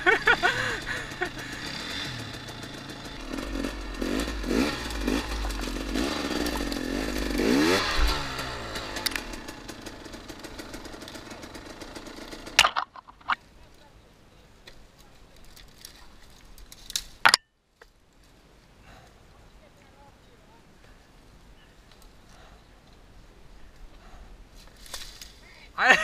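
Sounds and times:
dirt bike engine revving: 0.0s - 13.4s.

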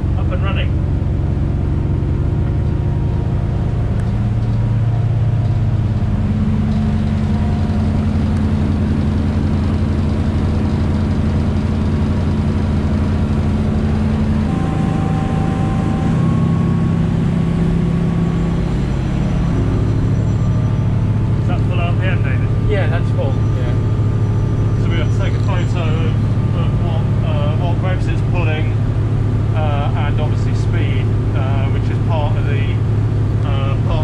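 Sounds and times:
boat engine running: 0.0s - 34.0s.

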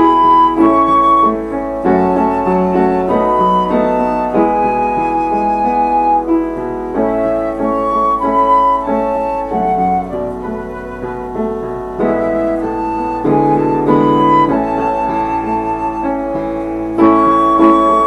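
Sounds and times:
slow instrumental music: 0.0s - 18.0s.

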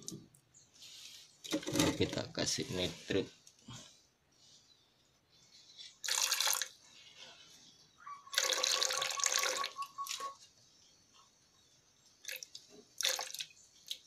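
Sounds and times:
liquid pouring into a jug: 6.0s - 6.8s, 8.3s - 10.2s, 12.3s - 14.0s.

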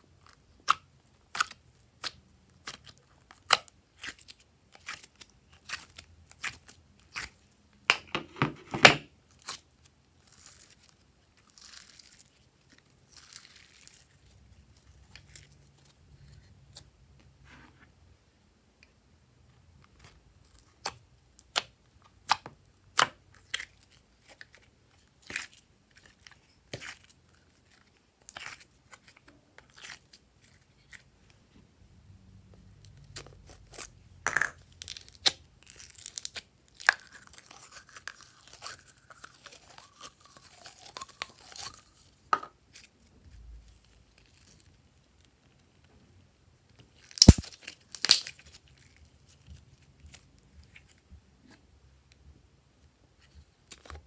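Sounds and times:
slime sticky clicks and pops: 47.2s - 48.3s.

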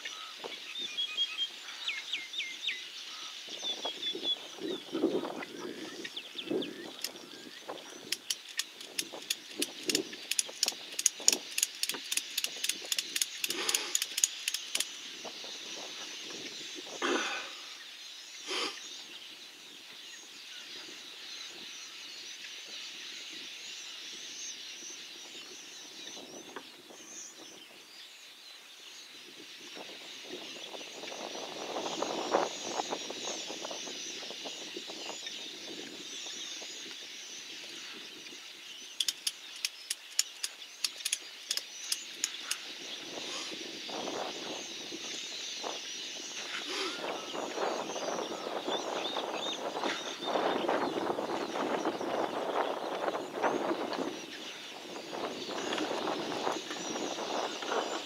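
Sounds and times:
fast run of sharp clicks: 8.0s - 15.0s, 39.0s - 42.6s.

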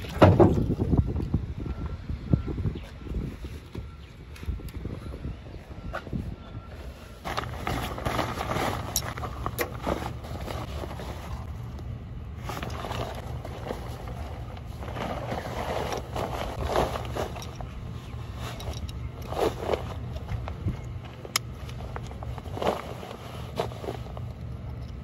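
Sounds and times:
nylon waders rustling: 12.4s - 20.4s.

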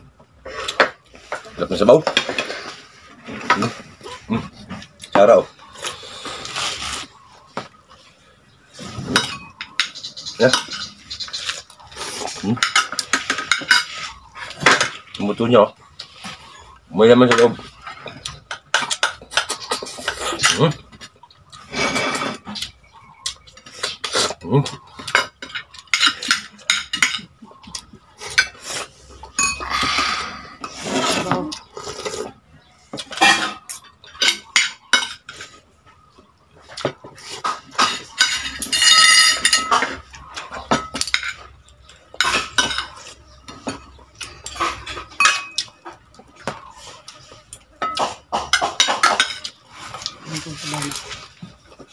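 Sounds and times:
cutlery clinking on a plate: 12.5s - 15.0s, 21.9s - 28.6s, 33.0s - 35.6s, 36.6s - 50.1s.

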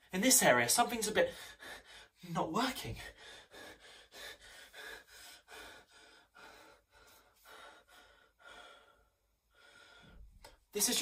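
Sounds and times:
man breathing quickly: 1.3s - 2.2s, 3.0s - 10.4s.

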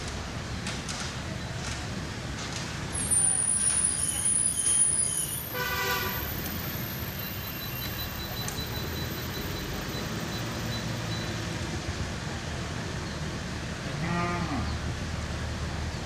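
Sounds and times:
cow mooing: 14.0s - 14.7s.

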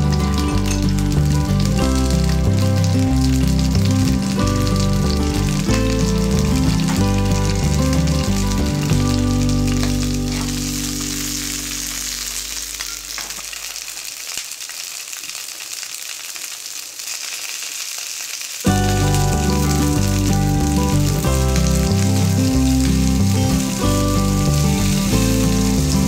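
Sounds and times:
background music: 0.0s - 12.8s, 18.7s - 26.0s
food sizzling in a frying pan: 0.0s - 26.0s.

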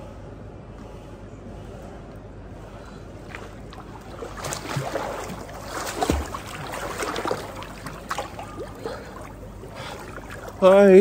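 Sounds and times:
swimmer splashing through water: 3.3s - 10.7s.

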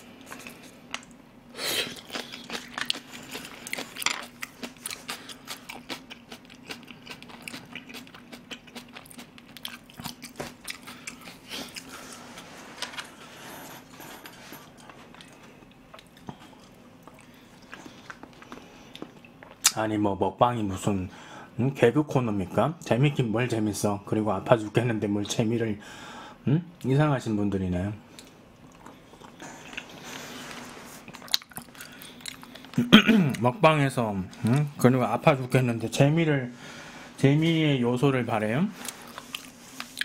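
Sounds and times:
crunchy wet chewing: 1.8s - 13.2s, 13.8s - 19.8s, 28.2s - 33.4s, 38.8s - 40.0s.

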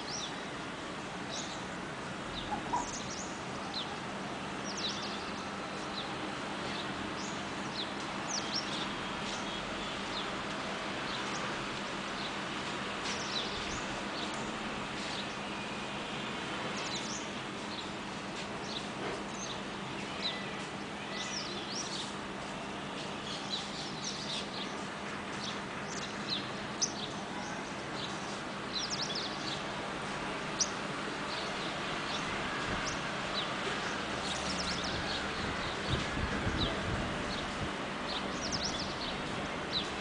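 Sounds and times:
steady background noise: 0.0s - 40.0s
birds chirping and chattering: 2.3s - 3.9s.

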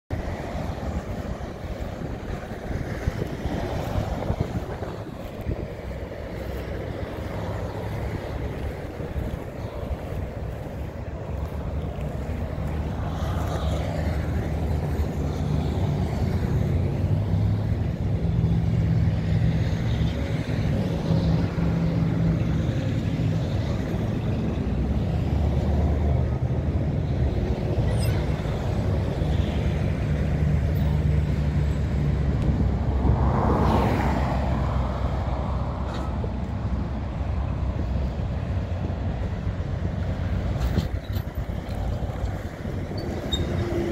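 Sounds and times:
highway traffic passing: 0.1s - 43.9s.

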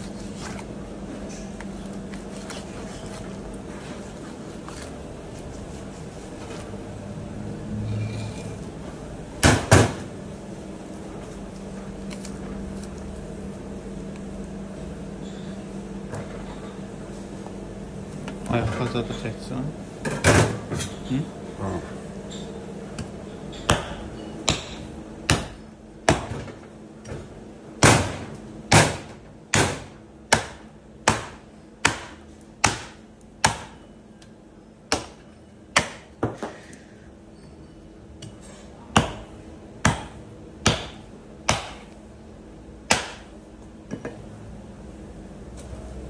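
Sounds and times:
hatchet chopping into bone: 23.7s - 26.4s, 27.8s - 33.8s, 35.8s - 36.1s, 39.0s - 41.9s, 42.9s - 43.3s.

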